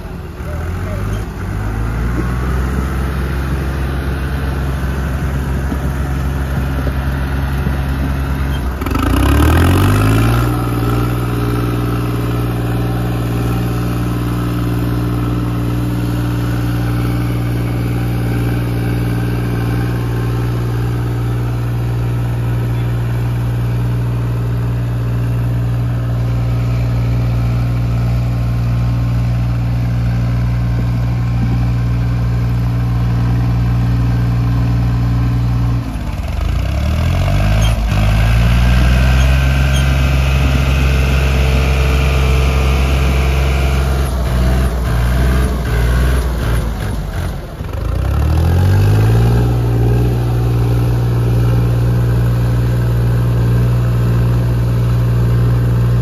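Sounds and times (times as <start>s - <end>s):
tractor diesel engine revving: 0.0s - 56.0s.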